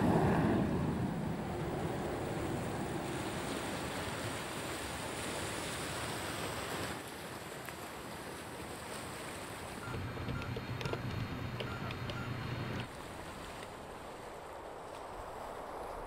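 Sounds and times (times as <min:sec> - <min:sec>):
rushing wind and sea: 0:00.0 - 0:16.0.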